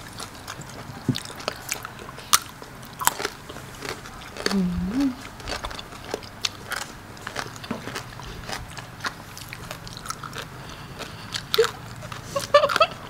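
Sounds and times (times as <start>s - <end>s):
people chewing: 0.0s - 13.0s
brief vocal sound: 4.5s - 5.2s.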